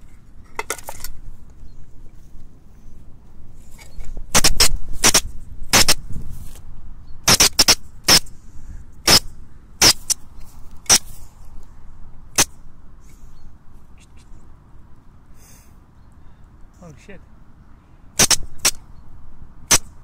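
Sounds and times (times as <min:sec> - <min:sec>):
weasel high sharp calls: 0:09.0 - 0:10.2.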